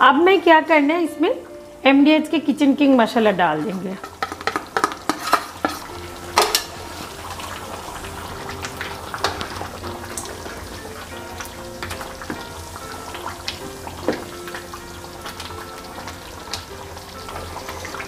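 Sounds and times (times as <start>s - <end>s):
curry sizzling in a pan: 0.0s - 18.0s
spoon knocking and scraping a pan: 3.5s - 7.4s, 8.6s - 18.0s.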